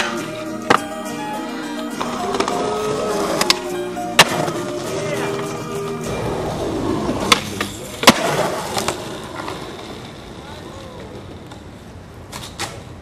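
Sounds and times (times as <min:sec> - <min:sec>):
background music: 0:00.0 - 0:07.6
skateboard snapping on concrete: 0:04.2 - 0:04.6, 0:07.2 - 0:10.1, 0:12.2 - 0:13.0.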